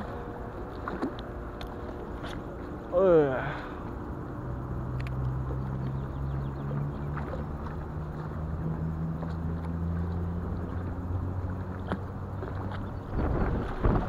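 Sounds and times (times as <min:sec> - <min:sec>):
distant motor hum: 0:00.0 - 0:14.0
steady rushing noise: 0:00.0 - 0:14.0
faint clicks: 0:04.9 - 0:06.0.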